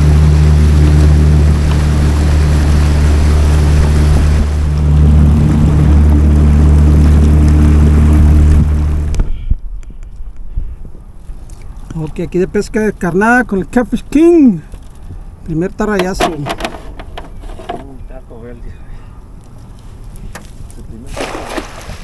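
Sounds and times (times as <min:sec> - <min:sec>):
water rushing along hull: 0:00.0 - 0:09.4, 0:15.9 - 0:18.1, 0:19.9 - 0:22.0
boat motor running: 0:00.0 - 0:09.6, 0:15.8 - 0:18.3.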